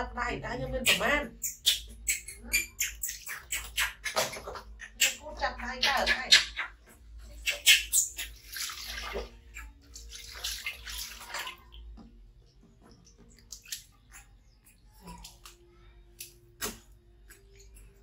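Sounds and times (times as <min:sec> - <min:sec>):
water splashing in basin: 0:02.6 - 0:11.9, 0:12.8 - 0:14.5.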